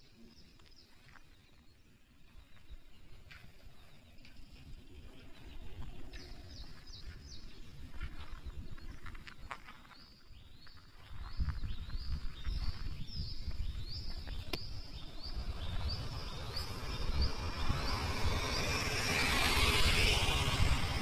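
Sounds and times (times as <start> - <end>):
low rumble: 11.4 - 21.0
vehicle approaching hiss: 14.6 - 21.0.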